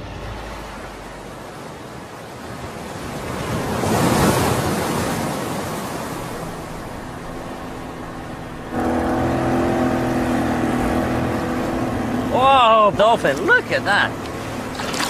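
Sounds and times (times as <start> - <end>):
sea water rushing: 0.0 - 15.0
boat engine running: 5.7 - 15.0.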